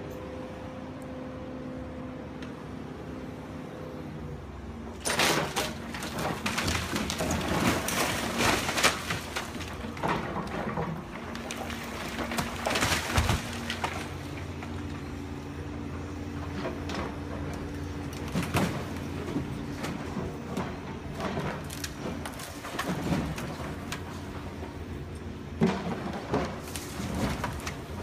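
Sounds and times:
excavator engine running: 0.0 - 28.0
falling rubble crunching: 5.0 - 15.2, 16.4 - 28.0.

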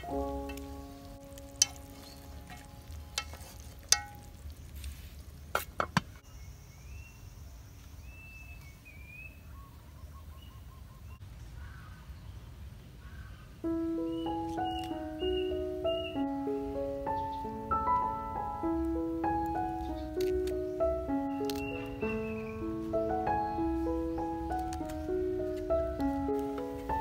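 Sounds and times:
birds chirping: 0.0 - 4.8, 5.4 - 27.0
chopsticks tapping metal pot: 0.4 - 4.5.

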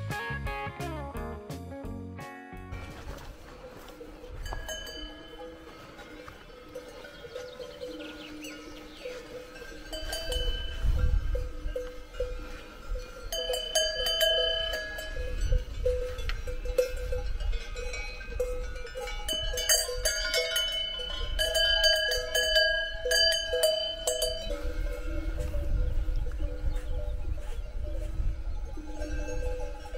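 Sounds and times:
cowbells clanking: 2.8 - 29.9.

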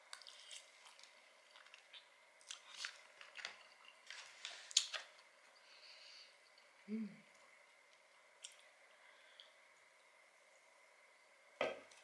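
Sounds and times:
person chewing: 0.0 - 5.2.

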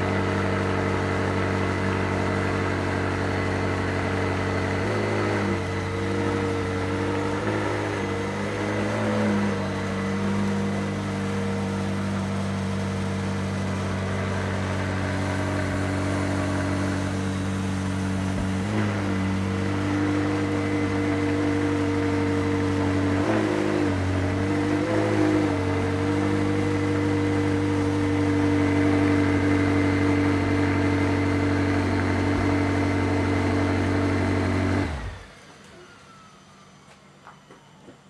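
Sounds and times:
engine running: 0.0 - 38.0
faint falling whine: 35.1 - 38.0.

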